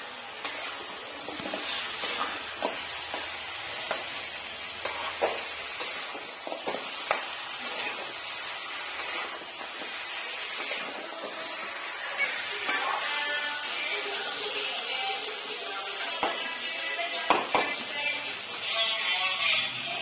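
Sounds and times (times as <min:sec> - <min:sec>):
meat and onions sizzling: 0:00.0 - 0:20.0
metal spatula scraping pan: 0:00.4 - 0:13.6.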